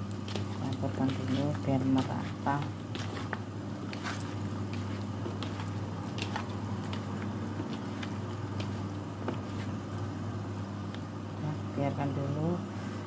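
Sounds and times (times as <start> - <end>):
wet squishing of meat: 2.0 - 9.6.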